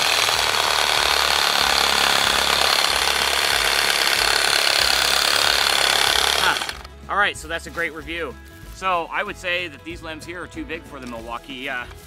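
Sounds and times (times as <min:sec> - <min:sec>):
reciprocating saw cutting wood: 0:00.0 - 0:06.9.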